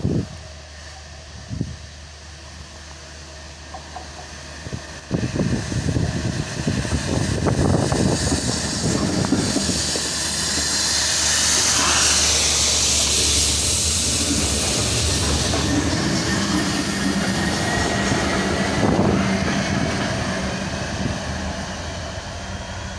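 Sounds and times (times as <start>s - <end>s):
strong steady hiss: 0.0s - 18.0s
diesel locomotive rumble: 0.0s - 22.9s.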